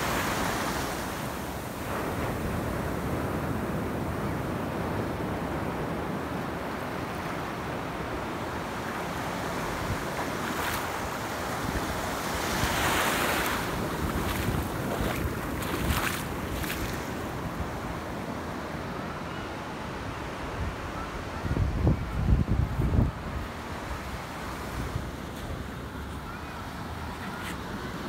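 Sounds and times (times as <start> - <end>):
small waves washing on shore: 0.0 - 18.9
wind rumbling on microphone: 9.1 - 18.0, 20.5 - 25.2
short water splashes: 12.6 - 17.2.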